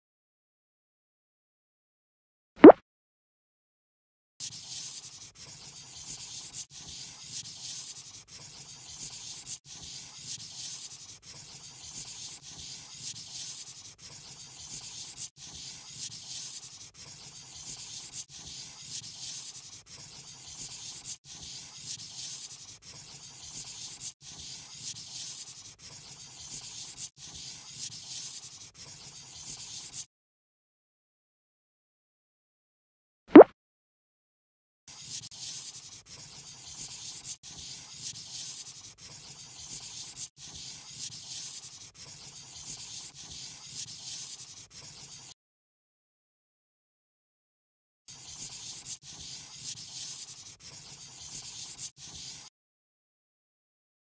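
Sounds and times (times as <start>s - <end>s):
crayon scribbling on paper: 4.4s - 30.1s, 34.9s - 45.4s, 48.1s - 52.5s.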